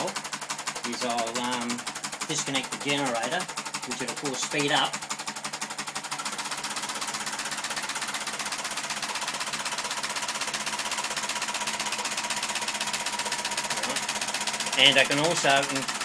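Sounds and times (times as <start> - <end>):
solenoid engine rapid clicking: 0.0 - 16.0.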